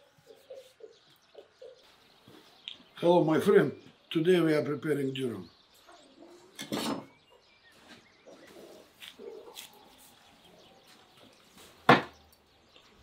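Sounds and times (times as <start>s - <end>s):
faint bird calls: 5.4s - 12.9s.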